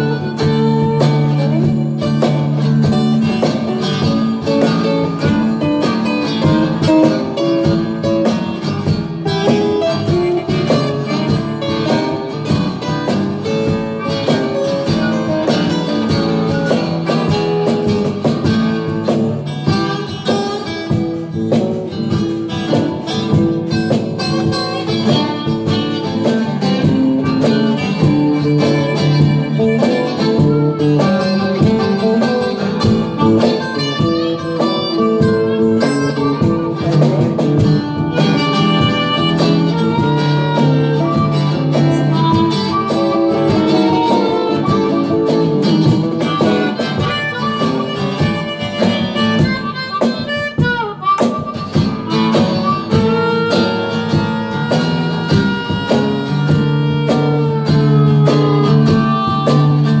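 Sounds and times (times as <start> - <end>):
blues guitar accompaniment: 0.0 - 60.0
harmonica solo: 0.0 - 60.0.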